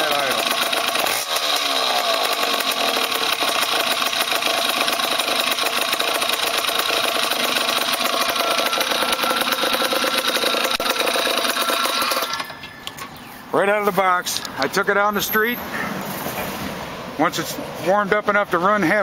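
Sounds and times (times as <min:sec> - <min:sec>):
two-stroke engine running: 0:00.0 - 0:12.6.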